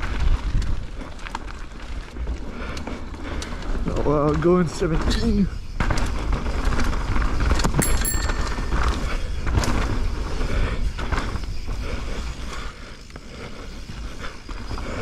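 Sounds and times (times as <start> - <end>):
wind rumble on microphone: 0.0 - 4.4
bike clattering over bumps: 0.0 - 12.2.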